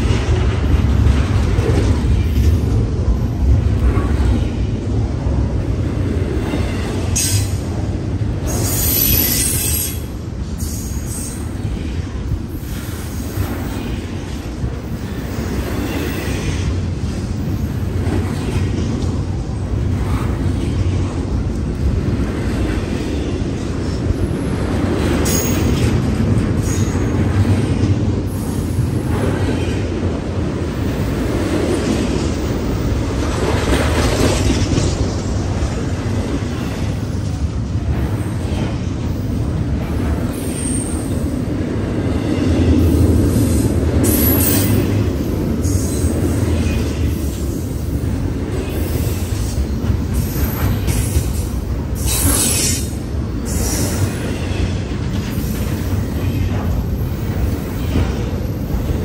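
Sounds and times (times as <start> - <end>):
steel wheels rumbling on rail: 0.0 - 59.0.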